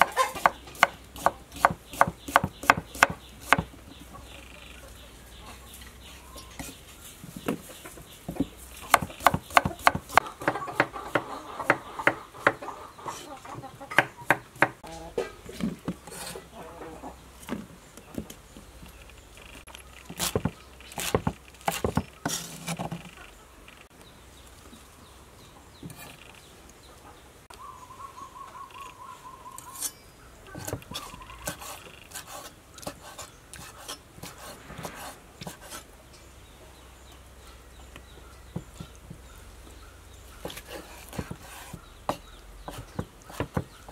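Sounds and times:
bird trill: 27.5s - 32.1s.

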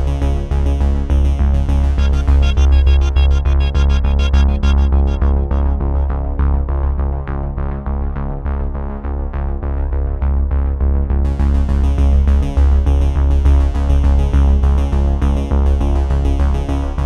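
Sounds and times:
heavy steady bass: 0.0s - 17.0s
electronic music with synthesizer: 1.0s - 7.2s
bright high synth layer: 2.0s - 6.2s.

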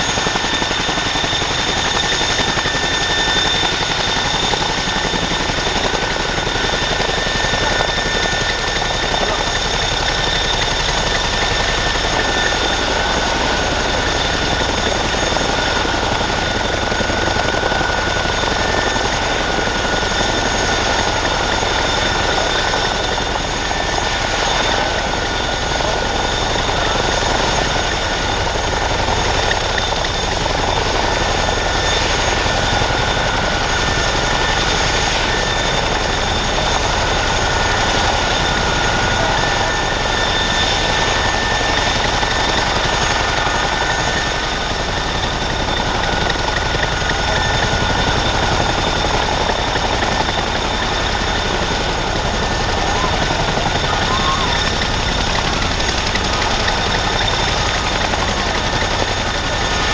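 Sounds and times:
helicopter engine whine: 0.0s - 59.9s.

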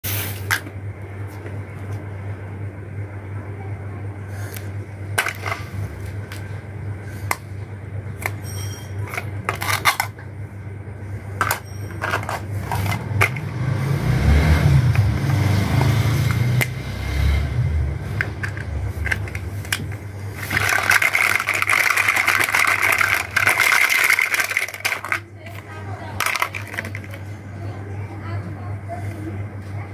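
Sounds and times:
steady low hum: 0.1s - 29.9s
continuous scraping: 11.0s - 14.0s, 17.2s - 29.9s
plastic toy pieces clicking together: 18.3s - 25.6s, 26.2s - 27.2s.

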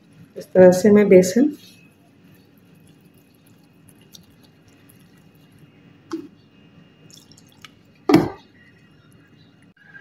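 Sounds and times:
whisk squishing batter: 2.1s - 5.7s
knock on bowl: 8.1s - 8.4s.

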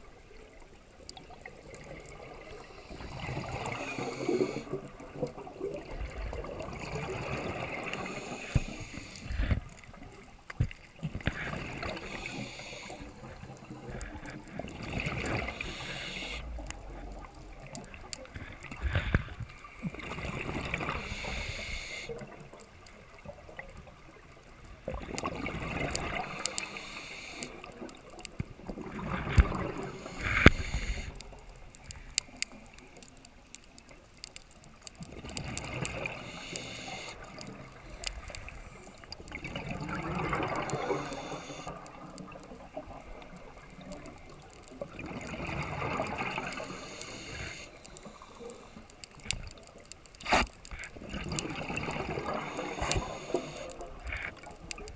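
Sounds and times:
exhaled bubbles gurgling underwater: 0.0s - 54.9s
regulator hiss: 2.7s - 4.8s, 7.9s - 9.6s, 11.8s - 14.3s, 15.4s - 17.3s, 20.9s - 22.3s, 26.2s - 27.8s, 29.8s - 32.4s, 36.1s - 38.9s, 40.7s - 41.8s, 46.4s - 48.9s, 52.4s - 54.3s.

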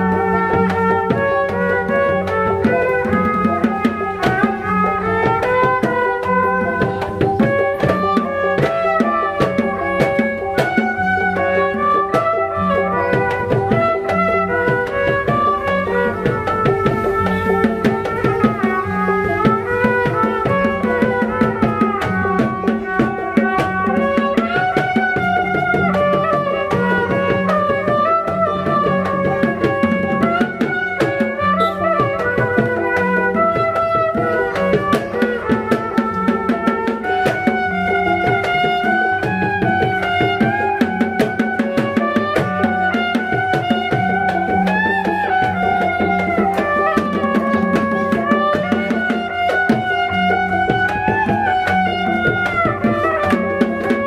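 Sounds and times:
fast drumming: 0.0s - 54.0s
reedy melody: 0.0s - 54.0s.

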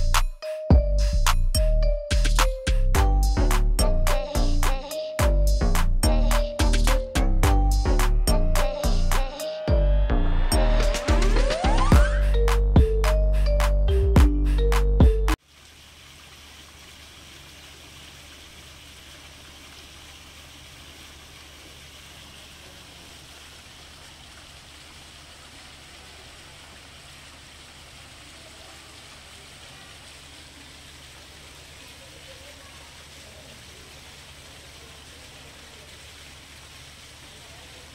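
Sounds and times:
burst of music: 0.0s - 15.4s
fountain water splashing into pool: 15.4s - 37.9s.

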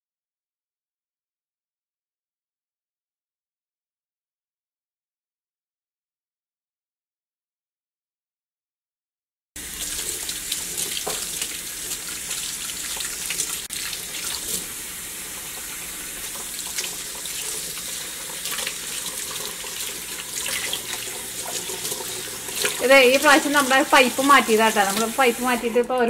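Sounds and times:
faucet water running into sink: 9.6s - 26.0s
hands rinsed under water: 9.6s - 26.0s.

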